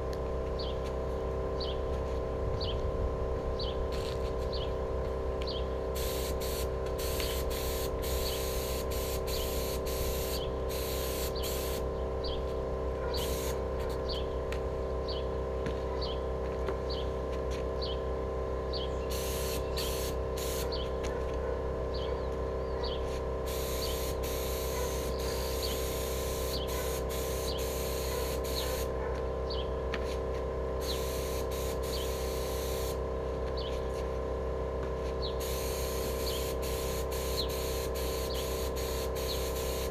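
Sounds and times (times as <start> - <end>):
steady hum: 0.0 - 39.9
paint spray gun hissing: 5.9 - 12.4, 13.1 - 14.2, 19.0 - 20.9, 23.0 - 29.0, 30.8 - 33.0, 35.2 - 39.9.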